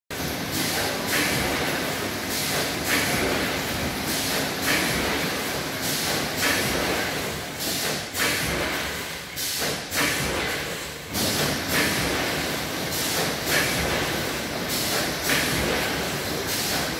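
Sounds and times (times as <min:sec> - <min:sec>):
packing machine running: 0:00.1 - 0:16.9.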